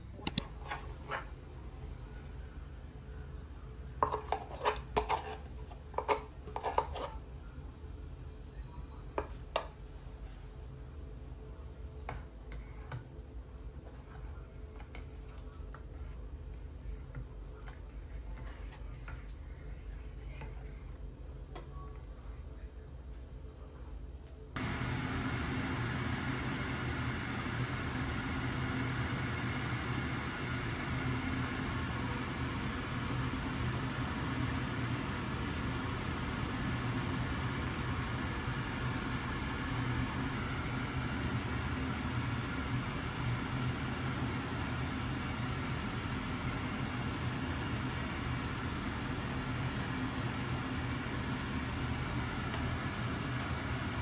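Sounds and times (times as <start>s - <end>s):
broth simmering: 24.6s - 54.0s
induction hob whirring: 24.6s - 54.0s.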